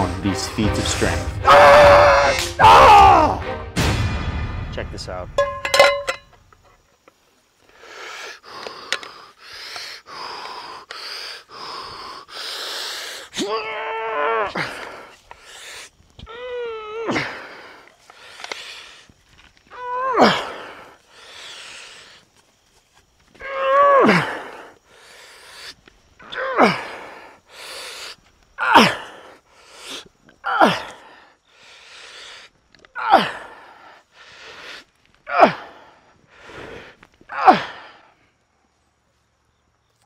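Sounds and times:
sharp breaths: 7.6s - 13.4s, 14.6s - 16.1s, 17.1s - 19.5s, 20.2s - 22.5s, 24.1s - 25.8s, 26.6s - 28.3s, 29.0s - 30.2s, 30.8s - 38.5s.

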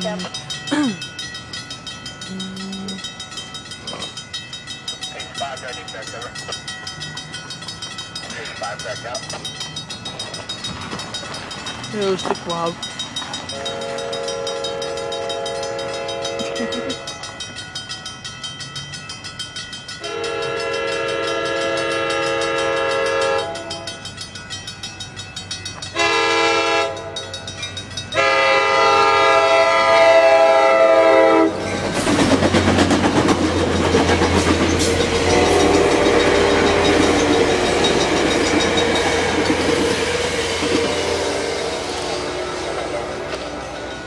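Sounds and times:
clickety-clack of train wheels: 0.0s - 44.0s
crossing bell ringing: 0.0s - 44.0s
train passing with loud rumble: 0.0s - 44.0s
train horn blasts: 13.5s - 16.9s, 20.0s - 23.9s, 26.0s - 27.3s, 28.2s - 31.6s, 35.1s - 37.6s, 39.1s - 43.6s.

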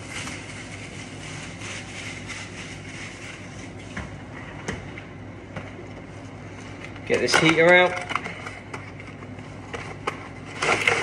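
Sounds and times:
plastic film rustling: 0.0s - 3.9s.

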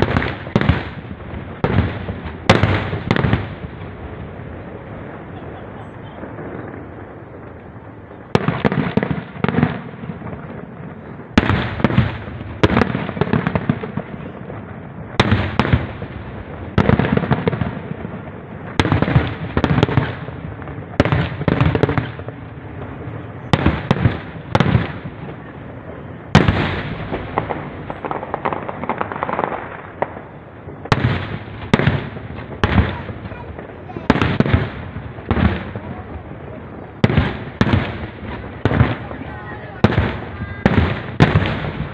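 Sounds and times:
fireworks booming with rumbling echo: 0.0s - 41.9s.

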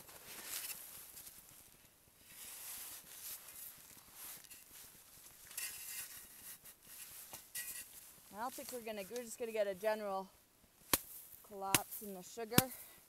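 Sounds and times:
snow crunching and rustling: 0.0s - 13.0s
shovel scraping snow: 0.1s - 1.2s, 2.2s - 9.4s.

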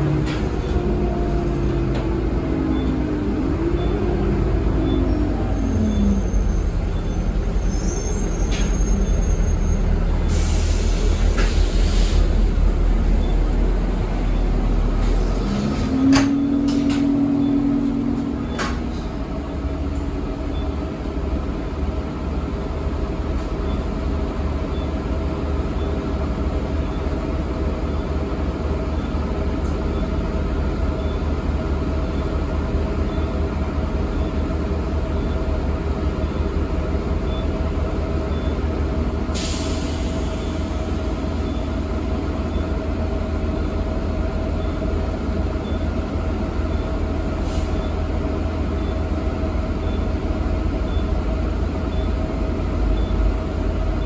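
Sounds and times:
bus engine and road drone: 0.0s - 54.0s
air brake hiss: 10.2s - 12.4s, 39.3s - 40.6s, 47.4s - 47.8s
short low tone: 15.8s - 19.7s.

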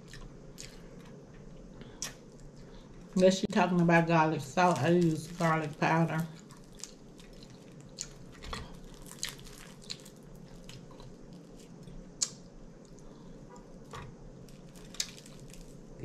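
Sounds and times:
wet chewing and mouth smacks: 0.0s - 2.7s, 6.4s - 13.7s
faint steady hum: 0.0s - 16.0s.

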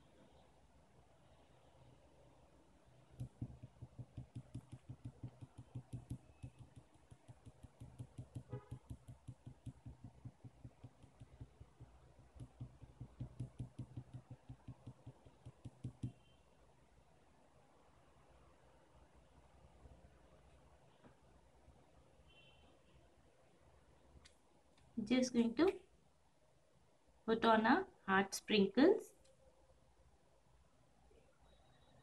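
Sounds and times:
skewer tapping against bowl: 3.2s - 16.2s.

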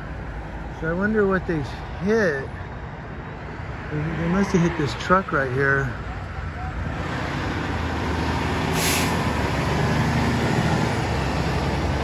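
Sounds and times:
short hiss: 8.8s - 9.2s.

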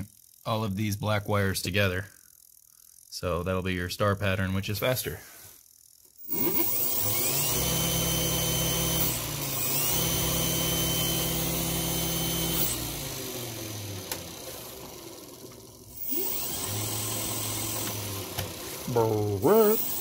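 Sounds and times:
electric motor humming and whining: 6.2s - 20.0s.

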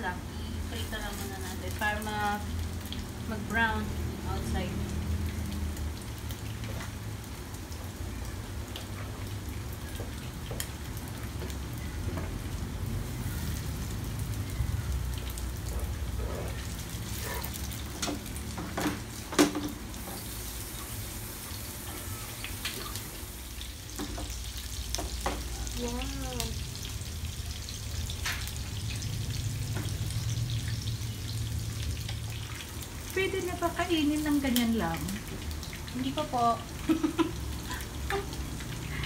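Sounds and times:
meatballs sizzling in oil: 0.0s - 39.0s.

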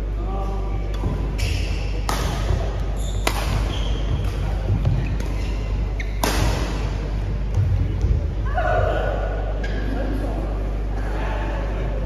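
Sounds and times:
rackets striking shuttlecock: 1.4s - 5.4s, 6.0s - 6.9s.

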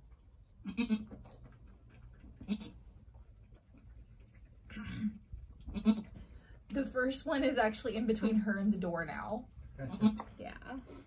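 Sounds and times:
goat calling softly: 0.6s - 1.3s, 2.4s - 2.9s, 5.6s - 6.3s, 9.8s - 10.4s.

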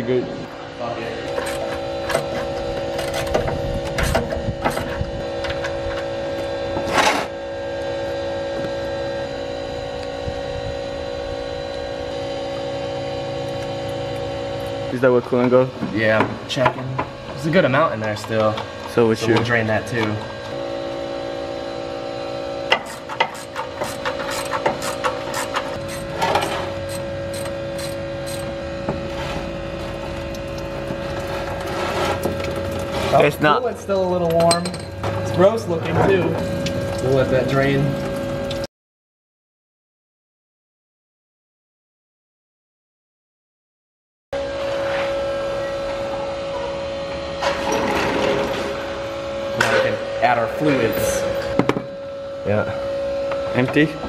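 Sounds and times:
steady hum: 0.0s - 38.7s, 44.4s - 54.0s
ratchet clicking: 26.9s - 28.5s
rustling scrape: 31.3s - 32.3s.

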